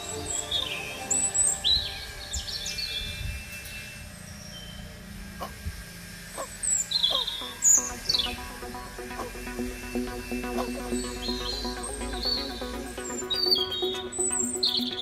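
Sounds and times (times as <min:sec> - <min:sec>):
soft background music: 0:00.0 - 0:03.2, 0:07.4 - 0:15.0
small birds chirping: 0:06.4 - 0:15.0.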